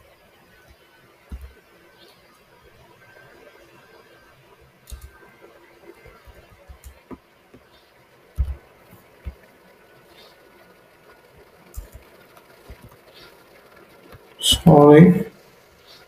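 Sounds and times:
keyboard typing: 4.9s - 5.3s, 6.0s - 7.1s, 8.3s - 9.5s, 10.1s - 14.4s.

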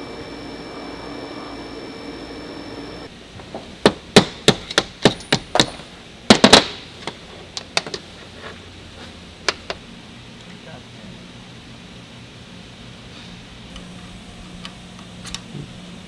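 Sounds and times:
milling machine humming: 0.0s - 3.1s, 13.7s - 16.0s.

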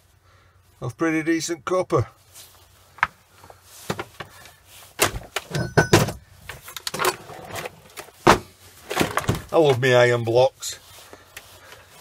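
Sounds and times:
metal knocks and scrapes on workbench: 5.0s - 6.2s.

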